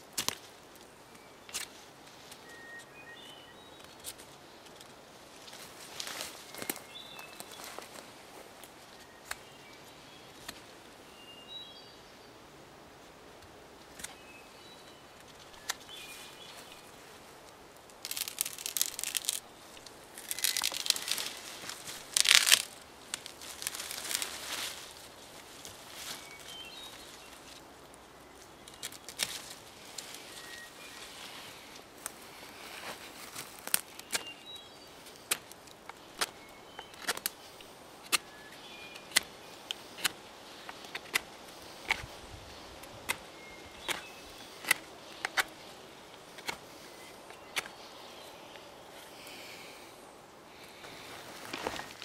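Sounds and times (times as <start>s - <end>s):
wood snapping: 0.1s - 0.9s, 17.8s - 24.9s, 28.6s - 30.2s, 33.2s - 34.4s, 35.0s - 37.4s, 38.9s - 42.1s, 42.8s - 46.7s
birds chirping: 1.0s - 52.0s.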